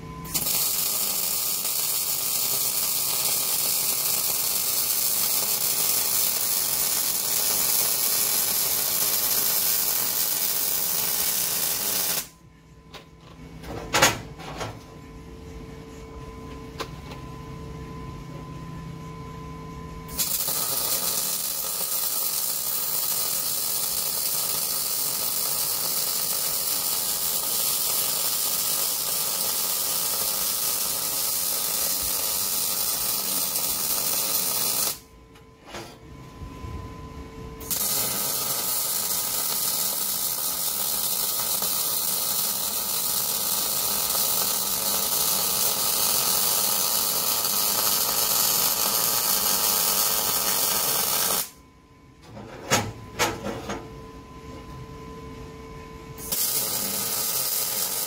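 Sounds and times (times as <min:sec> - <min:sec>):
welding arc hiss and crackle: 0:00.0 - 0:12.3, 0:20.1 - 0:35.1, 0:37.6 - 0:51.6, 0:56.2 - 0:58.0.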